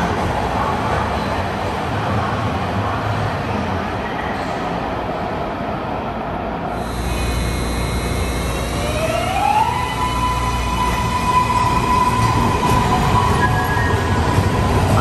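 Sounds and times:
traction motor whine: 6.8s - 12.9s
train wheels rumbling: 10.0s - 15.0s.

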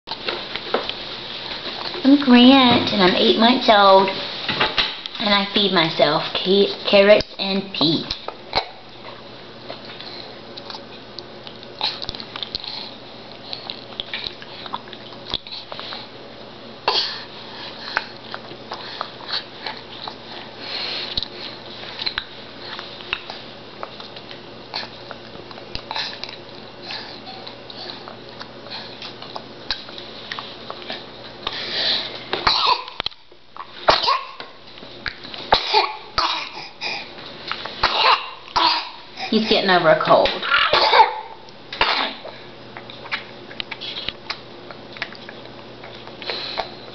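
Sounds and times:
steady low hum: 0.1s - 46.9s
baby coughing: 8.5s - 8.8s, 16.8s - 17.2s, 32.4s - 33.0s, 33.9s - 34.4s, 35.5s - 37.1s, 37.8s - 39.5s, 40.5s - 42.2s.

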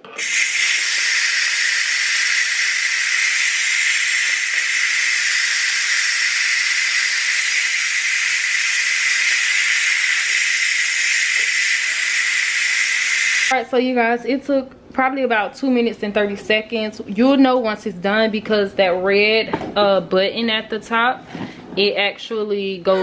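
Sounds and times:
steam hissing from pressure cooker: 0.0s - 13.6s.

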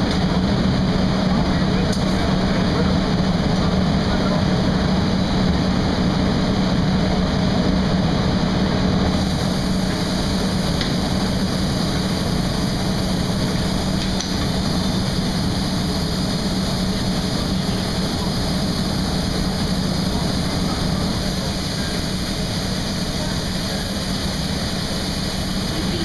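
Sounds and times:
constant low hum: 0.0s - 26.0s.

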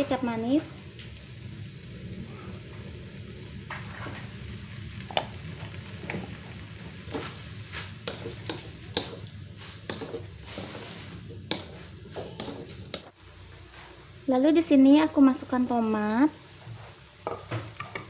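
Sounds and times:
low sizzle: 0.0s - 18.0s
spatula scraping frying pan: 7.1s - 13.1s.

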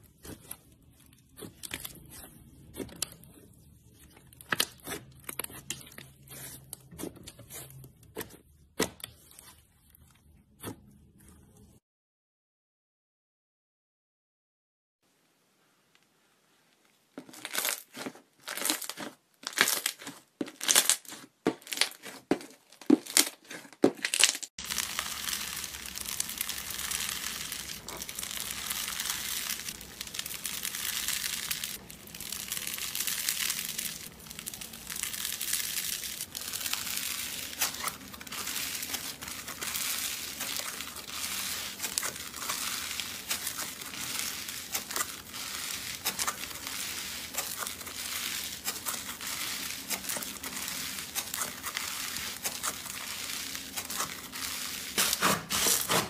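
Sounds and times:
crunchy slime crinkling: 0.0s - 8.4s, 17.2s - 56.0s
slime crackling: 17.4s - 56.0s.

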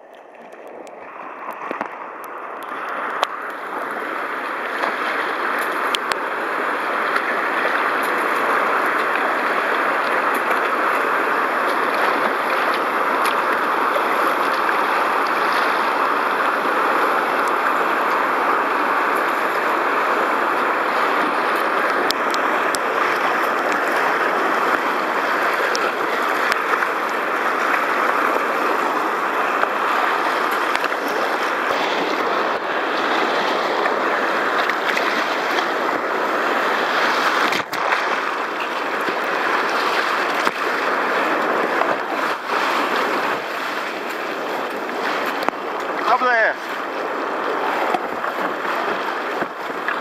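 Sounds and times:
whitewater rapids rushing: 0.0s - 50.0s
water splashing ticks: 11.6s - 13.7s, 30.4s - 31.5s, 43.3s - 46.0s.

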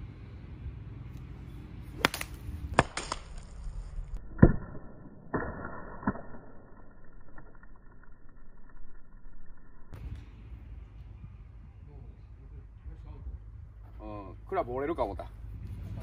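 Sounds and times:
golf club striking ball: 1.9s - 3.4s.

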